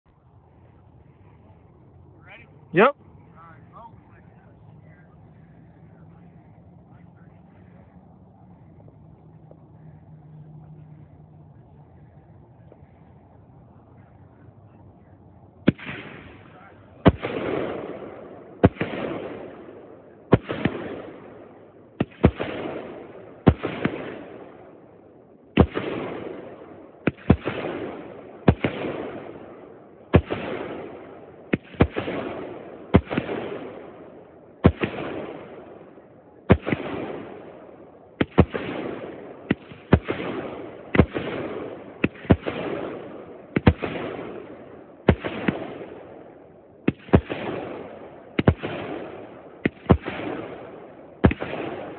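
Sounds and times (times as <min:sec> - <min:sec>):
fireworks bangs: 0:15.6 - 0:24.8, 0:25.5 - 0:51.9.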